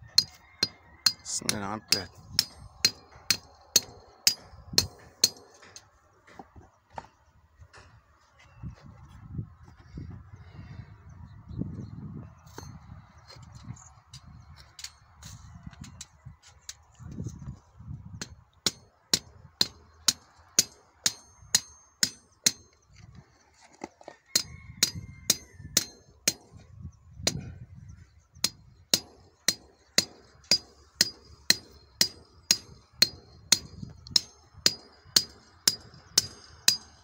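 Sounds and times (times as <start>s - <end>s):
hammer striking steel bar: 0.2s - 5.8s, 18.7s - 22.7s, 24.4s - 26.5s, 28.4s - 37.0s.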